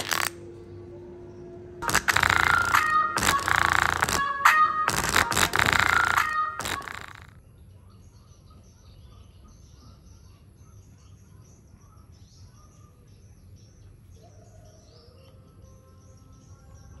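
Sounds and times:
small birds chirping: 0:04.9 - 0:17.0.

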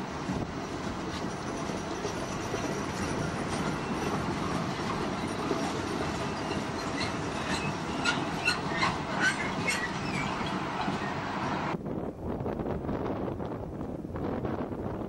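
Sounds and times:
wagon wheels rumbling on rail: 0:00.0 - 0:11.8
wheel squeals and clicks: 0:01.4 - 0:11.3.

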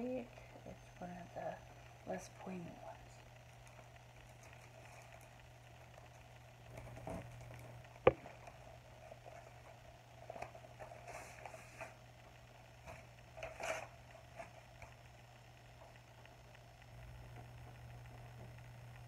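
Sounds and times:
plastic packaging rustling: 0:03.6 - 0:12.2.

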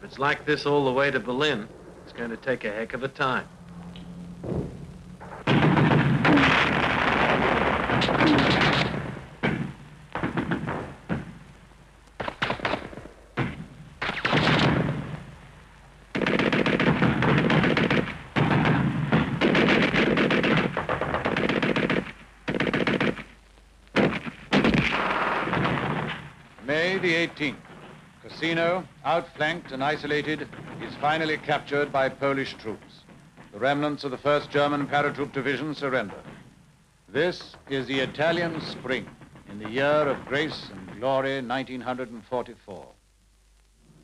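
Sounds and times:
machine-gun fire: 0:04.4 - 0:11.4, 0:12.2 - 0:15.3, 0:16.1 - 0:23.4, 0:24.0 - 0:28.6.

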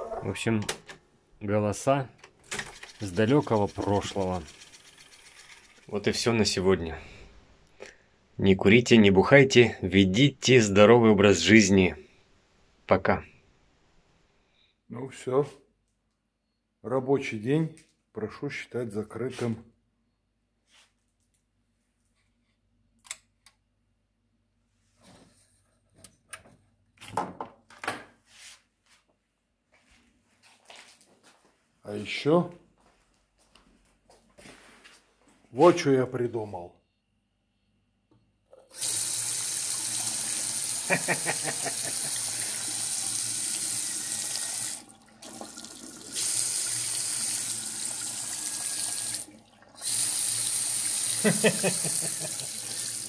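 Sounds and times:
tap water running into sink: 0:38.6 - 0:53.0.

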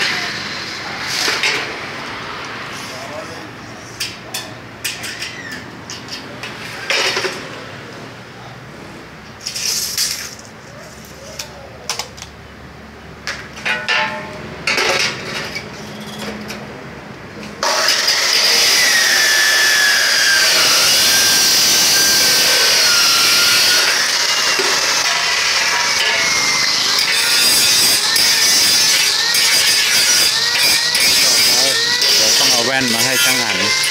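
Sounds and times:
cut-off saw grinding steel: 0:17.6 - 0:33.9.

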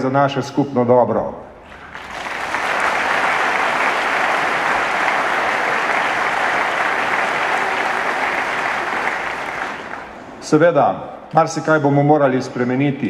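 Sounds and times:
audience applause: 0:01.7 - 0:10.4.

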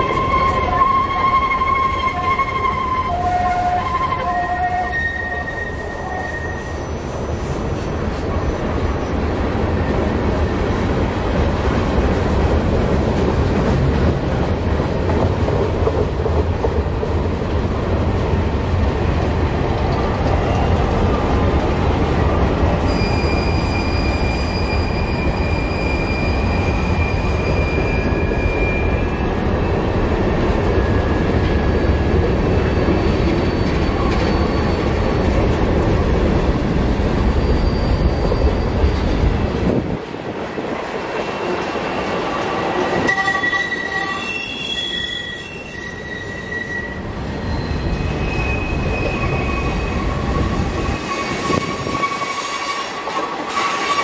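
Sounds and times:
wheel squeal: 0:00.0 - 0:07.6, 0:22.8 - 0:29.4, 0:32.6 - 0:35.2, 0:37.3 - 0:39.2, 0:41.2 - 0:54.0
freight train rumbling: 0:00.0 - 0:54.0.

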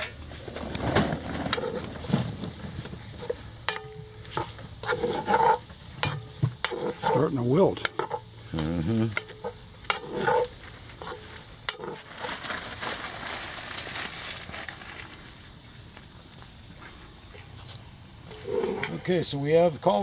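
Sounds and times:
greens sizzling in a pot: 0:03.0 - 0:15.2
wooden spoon scraping a pot: 0:04.2 - 0:08.2, 0:09.1 - 0:12.2.

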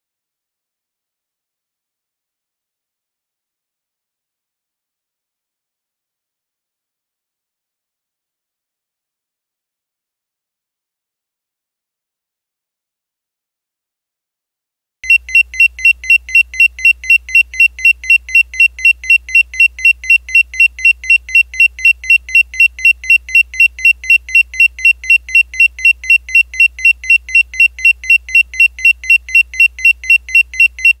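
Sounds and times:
high electronic timer beeps: 0:15.0 - 0:31.0.

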